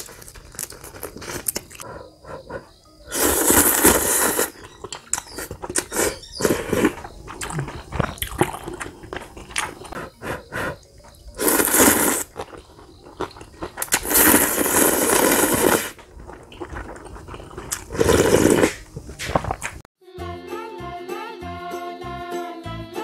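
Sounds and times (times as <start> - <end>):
chewing: 0.0 - 19.9
noodles slurped loudly: 3.1 - 4.7, 11.4 - 12.5, 13.3 - 19.8.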